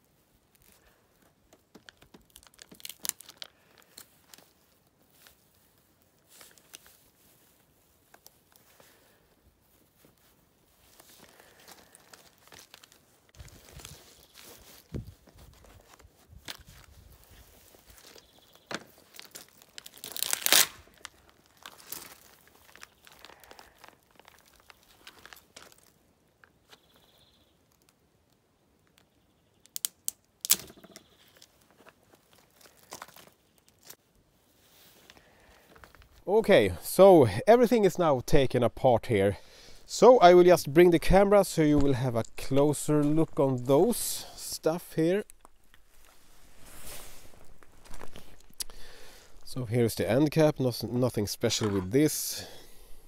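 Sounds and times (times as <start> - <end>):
foil crackling and tearing: 1.6 - 26.5, 30.4 - 34.1.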